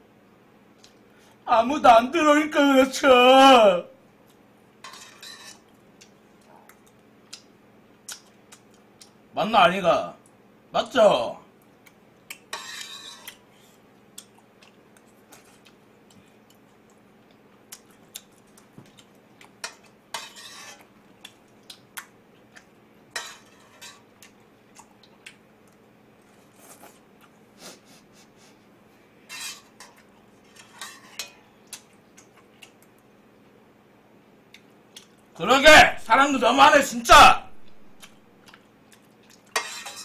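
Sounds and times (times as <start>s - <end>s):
metal utensil scraping metal pot: 4.8s - 5.6s, 12.5s - 13.3s, 20.1s - 20.8s, 23.2s - 24.0s, 29.3s - 31.4s, 39.5s - 40.0s.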